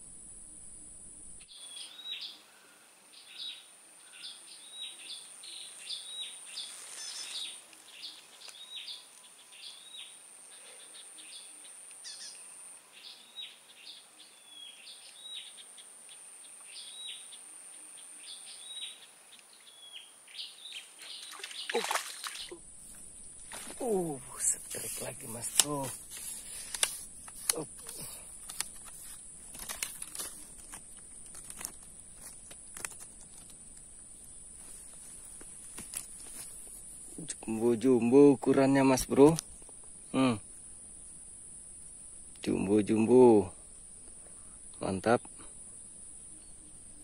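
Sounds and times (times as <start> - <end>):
bird chirping: 1.4 - 29.2, 46.1 - 47.0.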